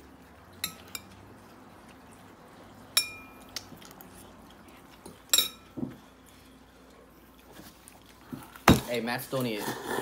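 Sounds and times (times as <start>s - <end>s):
forks clinking on ceramic bowls: 0.6s - 1.2s, 2.9s - 3.5s, 5.3s - 5.8s.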